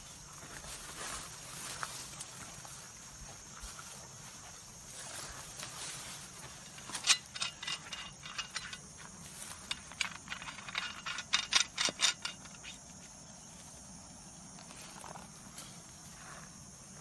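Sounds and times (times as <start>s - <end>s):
metal clicks and rattles: 6.7s - 12.8s.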